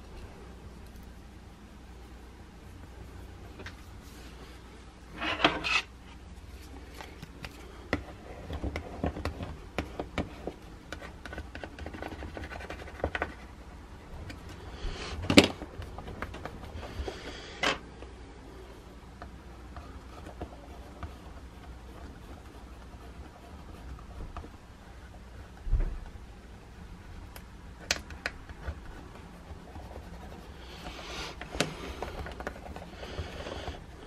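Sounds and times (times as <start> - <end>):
hands rubbing and scraping decal: 5.2 - 13.6.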